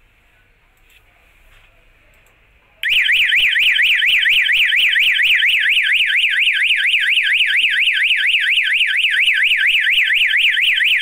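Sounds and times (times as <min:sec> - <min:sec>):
electronic alarm siren warbling: 0:02.8 - 0:11.0.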